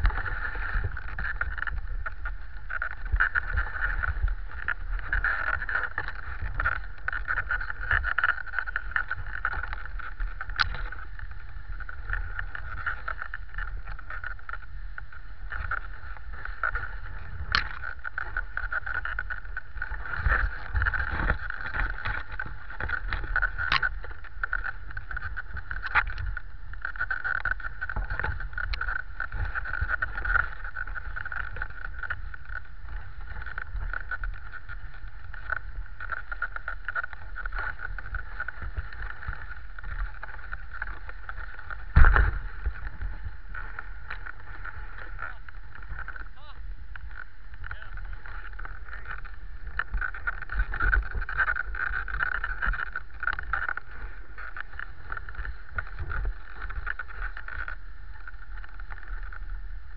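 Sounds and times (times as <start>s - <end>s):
sharp knocks from sled: 40.0s - 43.0s.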